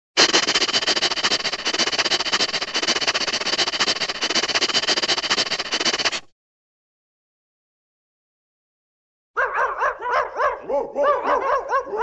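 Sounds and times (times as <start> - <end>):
cartoon rapid clicking rattle: 0.2 - 6.3.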